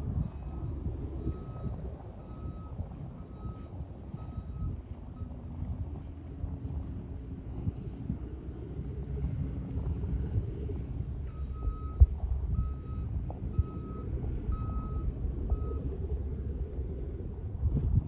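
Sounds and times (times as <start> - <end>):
vehicle reversing alarm beeping: 0.0 - 6.1, 10.2 - 16.6
low steady rumble: 0.0 - 18.0.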